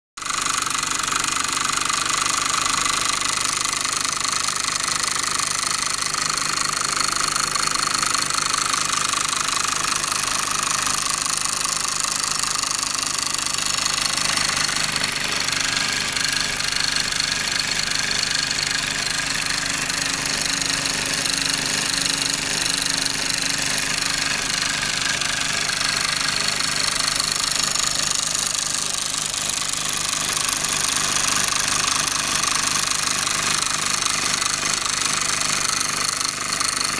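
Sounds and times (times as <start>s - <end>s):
toy steam engine rattling: 0.2s - 36.9s.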